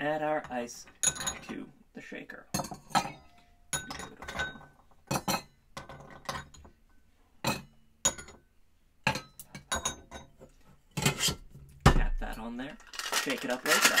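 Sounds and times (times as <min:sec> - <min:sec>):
ice cubes clinking into metal shaker: 0:12.8 - 0:14.0.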